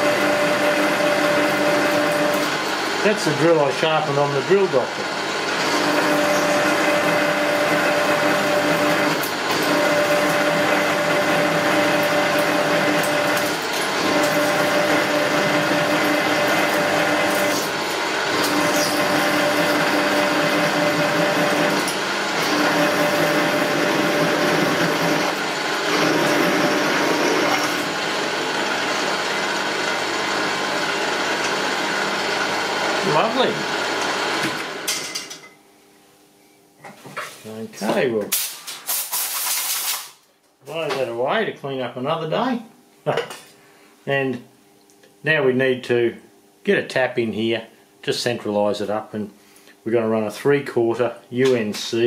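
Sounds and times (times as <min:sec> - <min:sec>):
milling machine drilling steel: 0:00.0 - 0:34.6.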